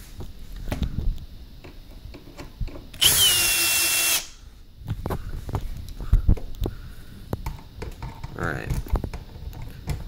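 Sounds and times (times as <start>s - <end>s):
cordless drill motor whine: 2.9s - 4.4s.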